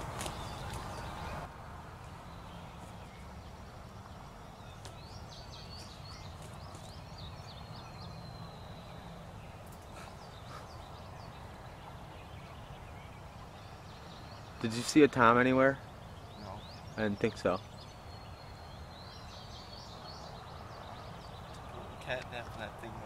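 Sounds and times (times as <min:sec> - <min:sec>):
songbird chirping: 0:00.0 - 0:23.0.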